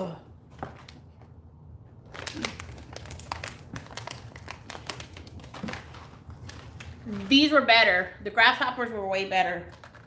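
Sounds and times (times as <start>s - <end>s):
plastic bag crinkling: 2.0s - 7.9s, 9.4s - 10.0s.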